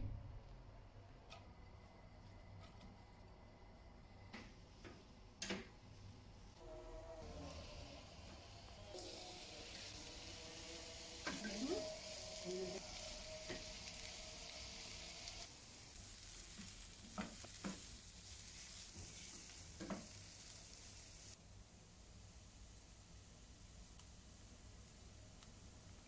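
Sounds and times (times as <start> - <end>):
onions sizzling in a pan: 6.7 - 21.4.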